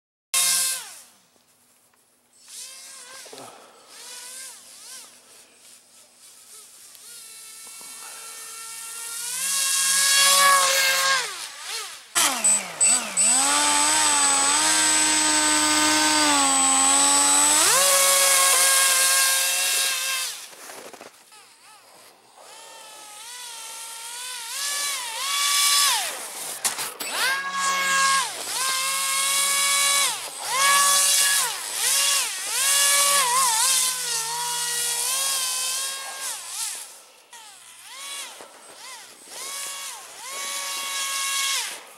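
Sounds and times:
model boat motor and propeller whining: 8.3s - 20.0s.

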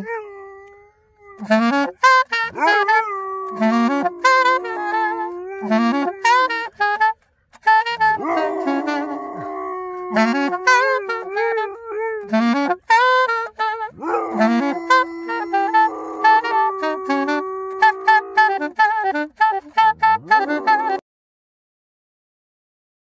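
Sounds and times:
saxophone melody: 0.0s - 21.0s
dog howling: 2.5s - 6.2s, 8.0s - 12.4s, 13.9s - 18.6s, 20.2s - 21.0s.

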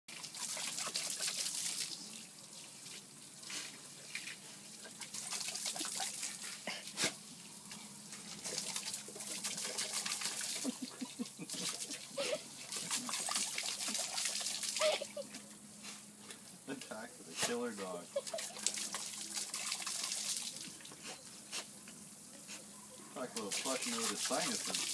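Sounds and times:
dog lapping at water: 0.1s - 1.9s, 4.1s - 7.2s, 8.3s - 15.0s, 18.2s - 20.6s, 23.4s - 24.9s
hose water splashing on concrete: 0.1s - 15.0s, 17.3s - 21.7s, 23.4s - 24.9s.

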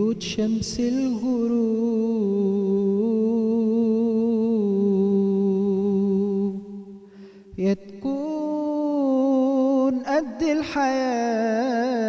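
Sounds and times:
man singing a long note: 0.0s - 7.0s, 7.6s - 12.0s.

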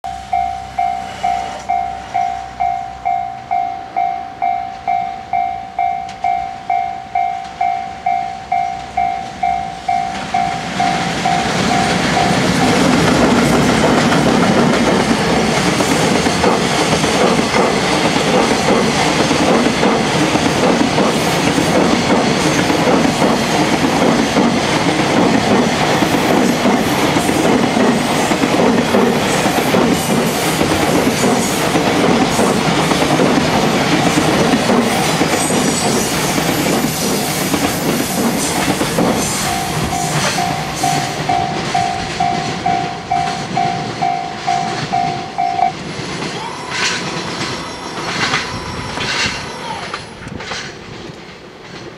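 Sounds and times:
level-crossing warning bell: 0.0s - 14.5s, 33.4s - 50.3s
freight train passing: 0.0s - 51.9s
train wheels clacking on rails: 0.1s - 51.9s.

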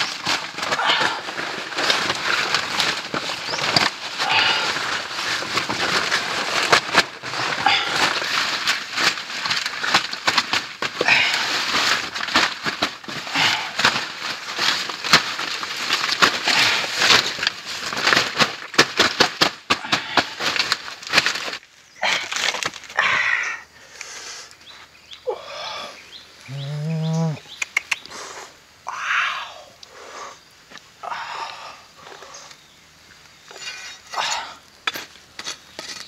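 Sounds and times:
leaves rustling and crinkling: 0.0s - 36.0s
man saying ooh: 26.5s - 27.4s.

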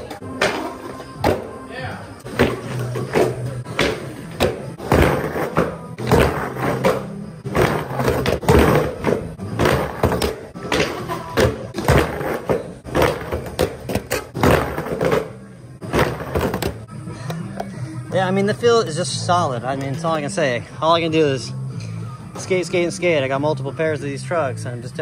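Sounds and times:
skateboard knocking and landing: 2.3s - 16.8s
skateboard rolling on concrete: 2.3s - 16.8s.

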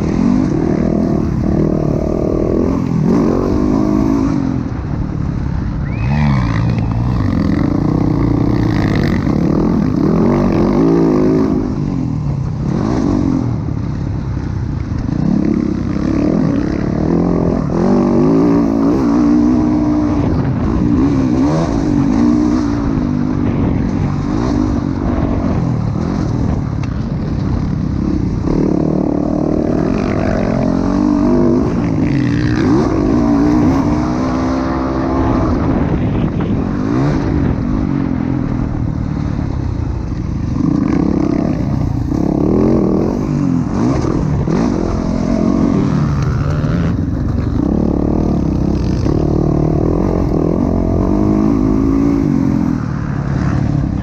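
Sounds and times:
dirt bike engine revving: 0.0s - 14.0s, 15.0s - 54.0s.

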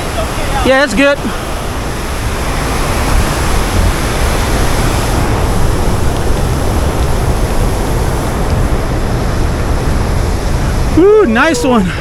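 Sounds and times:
water rushing through spillway: 0.0s - 12.0s.

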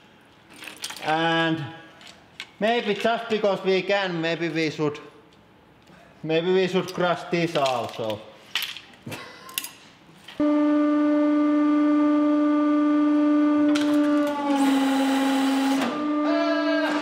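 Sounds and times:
hydraulic pump humming: 10.4s - 17.0s.

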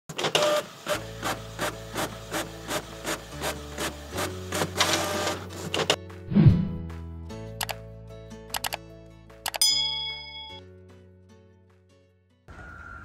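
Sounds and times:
printer clicking and whirring: 0.1s - 6.0s.

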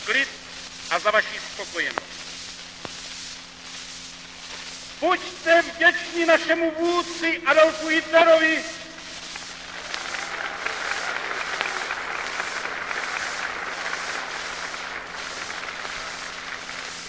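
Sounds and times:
crowd applauding: 9.6s - 17.0s.

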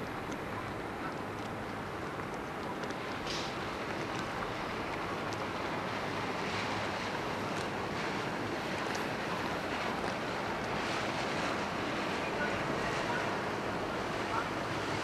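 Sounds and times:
river water churning: 0.0s - 15.0s.

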